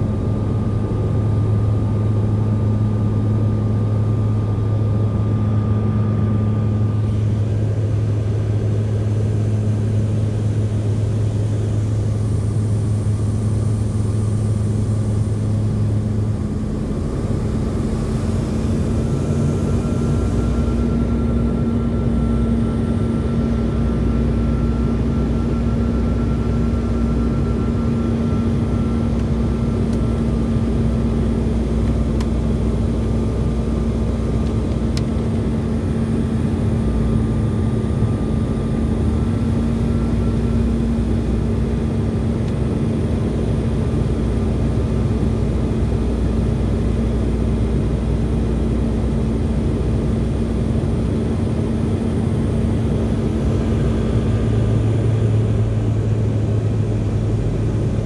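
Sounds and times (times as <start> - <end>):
jet airliner cabin noise: 0.0 - 58.0.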